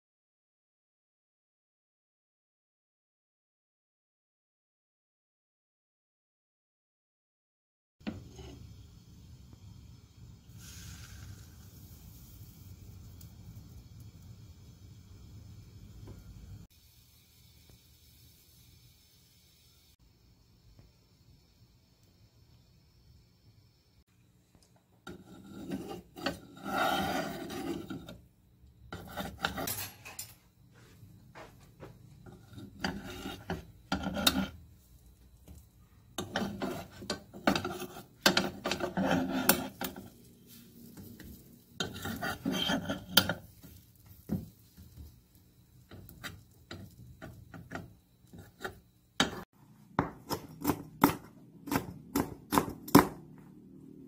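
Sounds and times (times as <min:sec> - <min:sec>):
utensil scraping frying pan: 0:08.0 - 0:08.8, 0:25.1 - 0:28.2, 0:28.9 - 0:30.4, 0:32.2 - 0:34.9, 0:36.0 - 0:45.2, 0:45.8 - 0:49.5
knife chopping on wooden board: 0:50.0 - 0:53.3.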